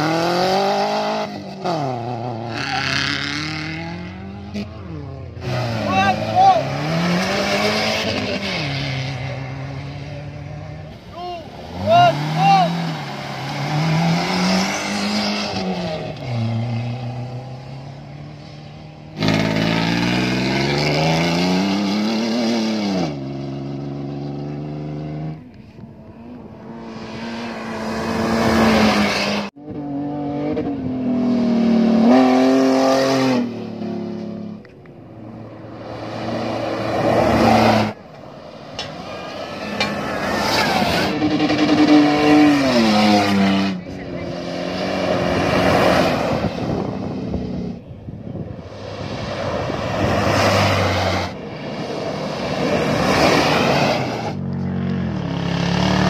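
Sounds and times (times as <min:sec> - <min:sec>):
off-road engines revving: 0:00.0 - 0:56.0.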